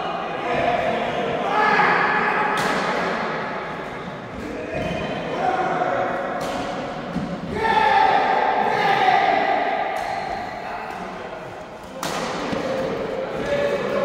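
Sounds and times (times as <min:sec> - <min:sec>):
voices calling in echoing hall: 0:00.0 - 0:14.0
rackets hitting shuttlecocks: 0:11.8 - 0:13.5.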